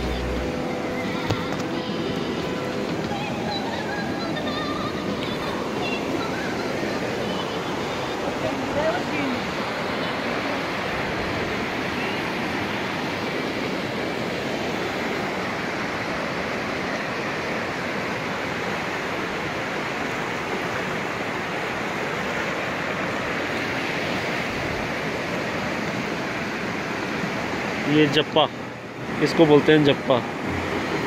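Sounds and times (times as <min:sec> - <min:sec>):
stream water flowing: 0:00.0 - 0:31.0.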